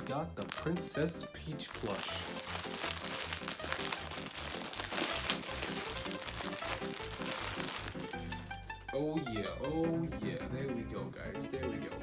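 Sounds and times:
plastic bag crinkling: 0.4s - 8.3s
music with rhythmic bass line: 2.2s - 12.0s.

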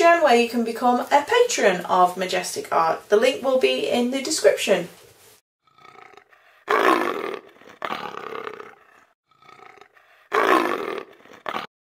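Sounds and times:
big cat growling and roaring: 5.8s - 11.7s.

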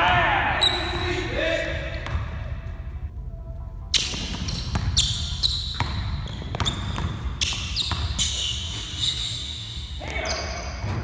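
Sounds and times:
sneakers squeaking on floor: 0.6s - 1.3s, 3.9s - 11.0s
basketball bouncing on hardwood floor: 5.7s - 8.2s.

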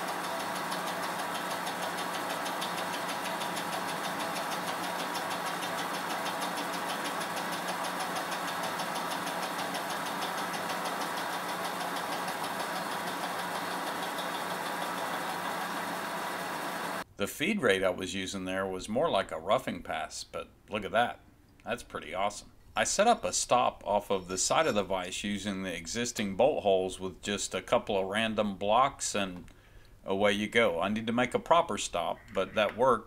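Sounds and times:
milling cutter cutting metal: 0.0s - 17.0s.

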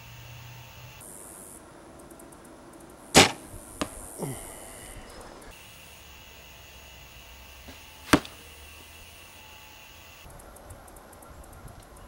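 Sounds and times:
arrow striking target: 3.2s - 4.0s, 7.7s - 8.4s.

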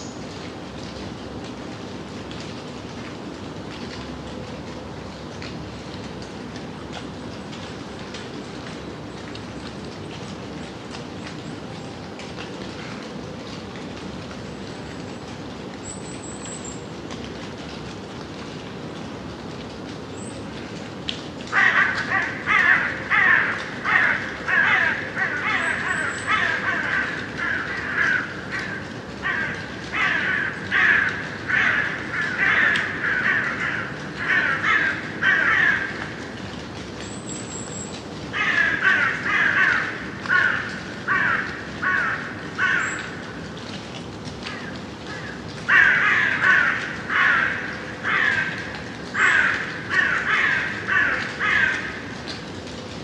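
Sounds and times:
gentle rain hissing: 0.0s - 53.0s
crows cawing: 21.5s - 36.3s, 38.3s - 43.3s, 44.5s - 52.2s.

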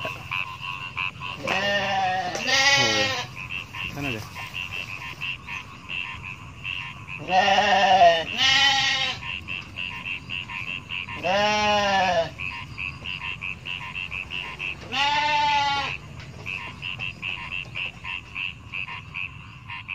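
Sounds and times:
frogs croaking: 0.0s - 19.9s
sheep bleating: 1.4s - 3.9s, 7.2s - 9.3s, 11.2s - 12.3s, 14.8s - 16.0s.

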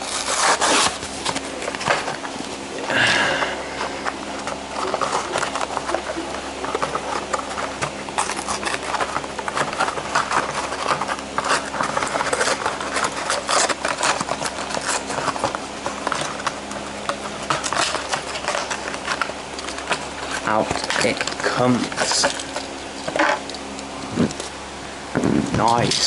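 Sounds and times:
cardboard ripping: 0.0s - 23.5s
plastic blister crackling: 0.0s - 26.0s.

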